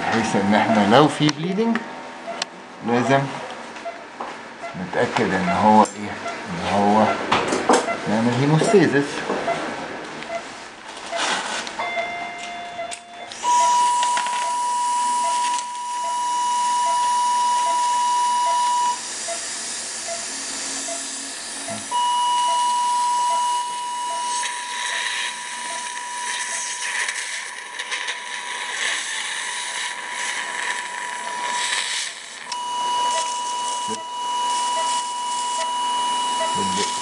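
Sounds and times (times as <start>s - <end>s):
high electronic activation tone: 11.8s - 27.6s, 29.9s - 37.0s
hiss: 19.0s - 21.9s, 26.3s - 32.4s.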